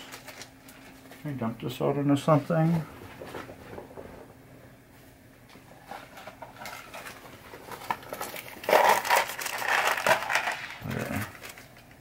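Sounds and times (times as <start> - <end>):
faint steady hum: 0.0 - 12.0
objects rustling and knocking: 2.5 - 4.4, 5.0 - 11.9.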